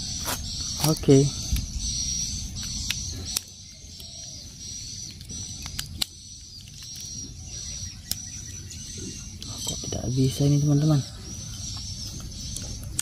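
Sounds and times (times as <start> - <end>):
high-pitched outdoor chirring: 0.0 - 13.0
batteries clicking and rattling: 0.2 - 8.4.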